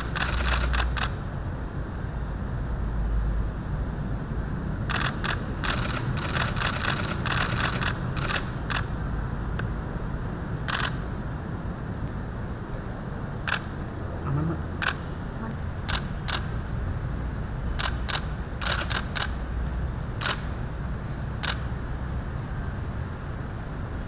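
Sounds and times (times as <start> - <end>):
camera shutters clicking: 0.0 - 1.2, 4.9 - 8.9, 10.7 - 11.0, 13.5 - 13.7, 14.8 - 15.0, 15.9 - 16.5, 17.8 - 19.4, 20.2 - 20.5, 21.4 - 21.7.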